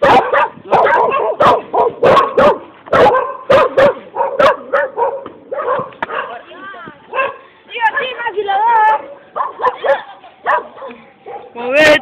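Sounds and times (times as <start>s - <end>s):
dog barking: 0.0s - 6.4s, 7.1s - 7.4s, 8.9s - 11.6s.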